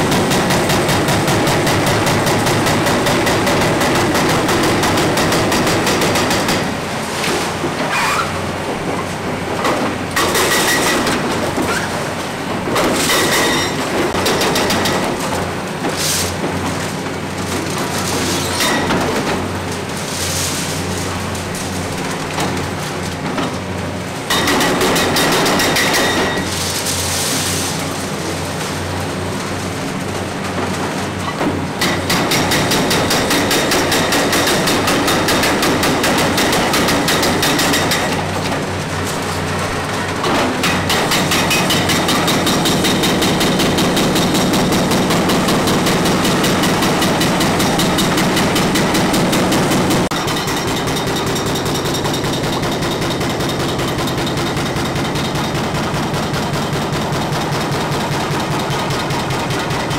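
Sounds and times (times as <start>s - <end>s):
hydraulic breaker pounding concrete: 0.0s - 59.9s.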